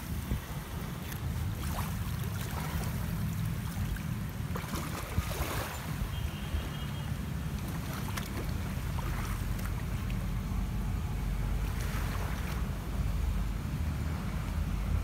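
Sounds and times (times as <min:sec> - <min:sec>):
wind buffeting the microphone: 0:00.0 - 0:06.8
sea waves washing on shore: 0:00.0 - 0:15.0.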